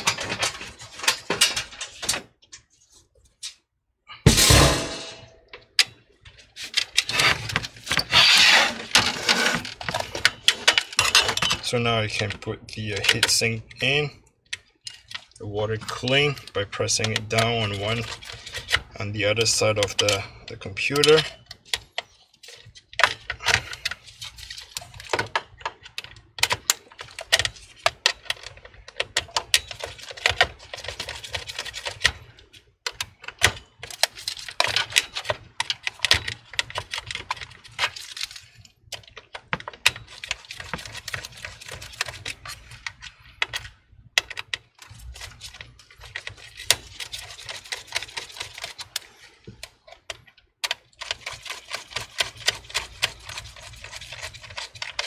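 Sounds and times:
screwdriver clicking and rattling: 21.0 - 55.0.

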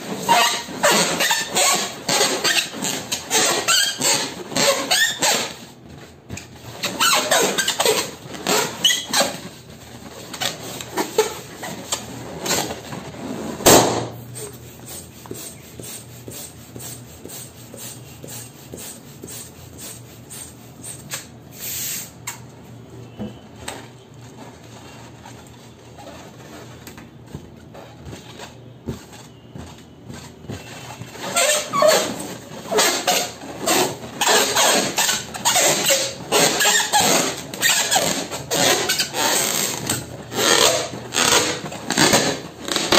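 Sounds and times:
hands squeaking a rubber balloon: 0.0 - 21.4, 24.2 - 42.9
hand balloon pump strokes: 0.0 - 22.2, 24.4 - 42.9
balloon popping: 13.6 - 14.5.

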